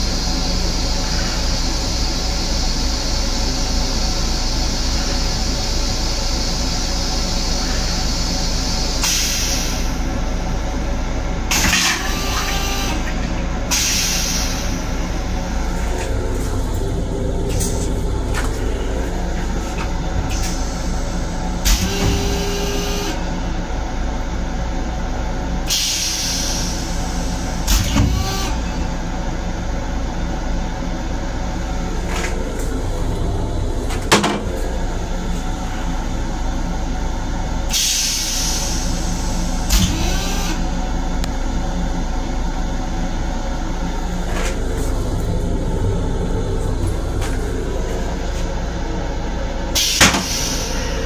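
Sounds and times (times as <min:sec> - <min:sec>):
train low rumble: 0:00.0 - 0:51.0
air hisses: 0:13.7 - 0:16.7.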